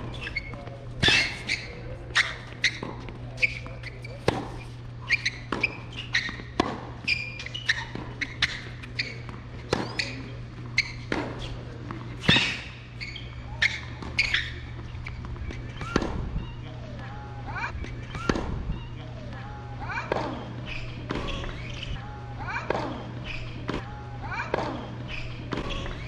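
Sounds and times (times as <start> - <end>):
tennis ball off rackets: 0.0 - 16.9, 17.8 - 18.7, 20.0 - 22.0, 24.5 - 26.0
steady low hum: 0.0 - 26.0
ball bouncing: 13.3 - 17.1, 17.8 - 19.5.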